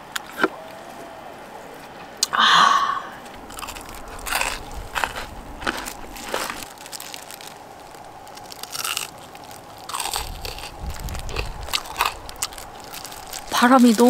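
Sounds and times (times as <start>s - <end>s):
chewing: 3.2s - 14.0s
crunchy bites of fried chicken: 3.4s - 13.5s.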